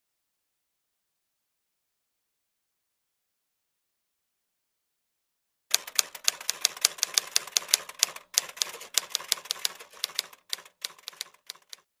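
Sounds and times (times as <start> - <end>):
typewriter key strikes: 5.7 - 11.8.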